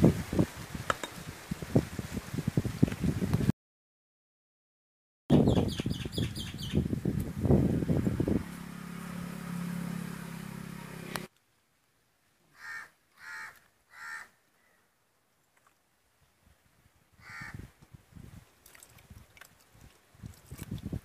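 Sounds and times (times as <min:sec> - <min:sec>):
crow cawing: 0:12.5 - 0:14.8, 0:17.2 - 0:17.6.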